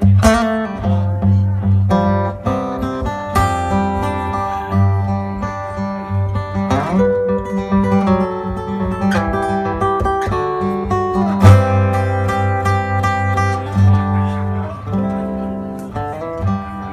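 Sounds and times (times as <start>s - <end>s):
acoustic guitar fingerpicked melody: 0.0s - 16.9s
guitar chord strummed: 0.0s - 16.9s.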